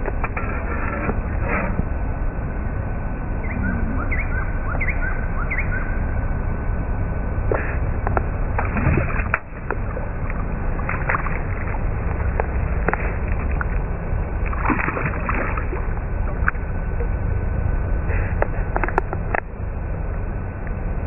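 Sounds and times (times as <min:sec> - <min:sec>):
low rumble: 0:00.0 - 0:21.0
fish splashing at surface: 0:08.6 - 0:16.7.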